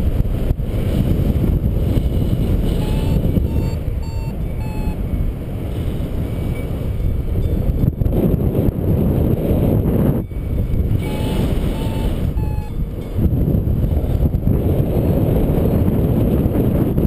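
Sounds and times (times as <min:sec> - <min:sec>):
wind buffeting microphone: 0:00.0 - 0:17.0
short electronic beeps: 0:02.7 - 0:05.3, 0:10.3 - 0:12.9.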